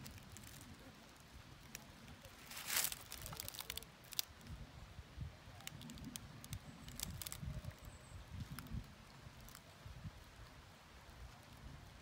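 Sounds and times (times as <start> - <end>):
footsteps on dry leaves and stones: 0.0 - 0.8, 2.3 - 4.3
sharp rustle: 2.3 - 4.2.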